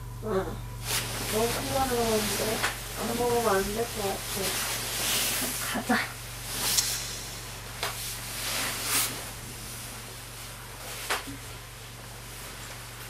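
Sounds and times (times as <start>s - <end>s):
steady low hum: 0.0s - 13.0s
jacket and bedding rustling: 0.8s - 13.0s.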